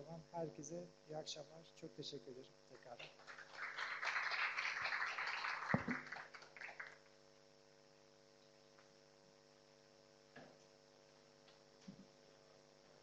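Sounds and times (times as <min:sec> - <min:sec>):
faint electrical hum: 0:00.0 - 0:13.0
audience applauding: 0:02.9 - 0:07.0.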